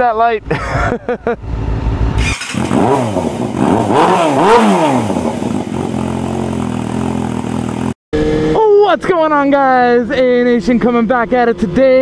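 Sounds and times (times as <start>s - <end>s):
motorcycle engine revving: 1.4s - 8.6s.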